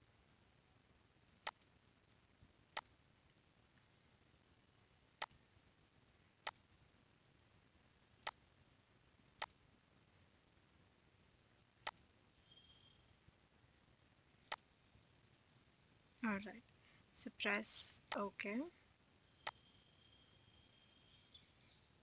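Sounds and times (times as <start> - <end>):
computer mouse clicking: 1.4 - 1.7, 2.7 - 3.0, 5.2 - 5.4, 6.4 - 6.7, 9.4 - 9.6, 11.8 - 12.1, 14.5 - 14.7, 19.4 - 19.7.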